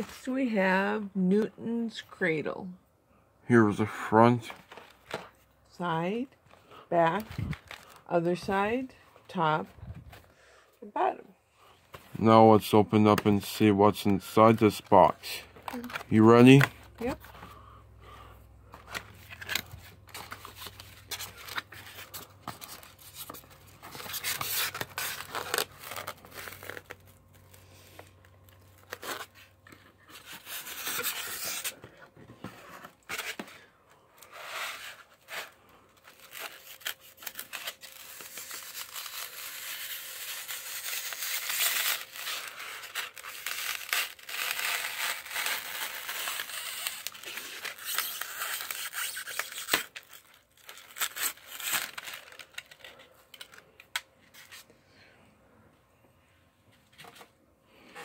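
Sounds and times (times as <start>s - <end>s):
cardboard tearing and rustling: 18.7s - 33.6s, 34.2s - 53.6s.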